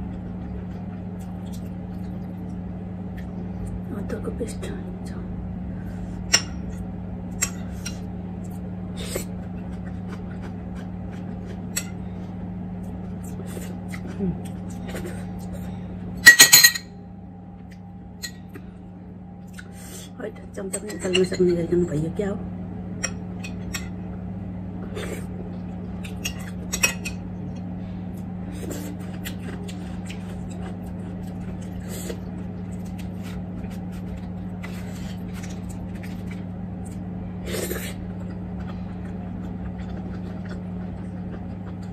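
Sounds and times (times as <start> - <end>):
steady low hum: 0.0 - 41.9
chewing and mouth clicks: 37.9 - 41.9.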